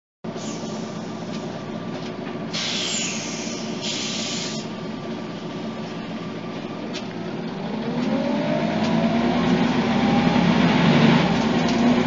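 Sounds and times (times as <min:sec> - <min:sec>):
compressed air hissing: 0:00.3 - 0:01.3, 0:02.5 - 0:04.8
bus diesel engine idling: 0:00.3 - 0:12.0.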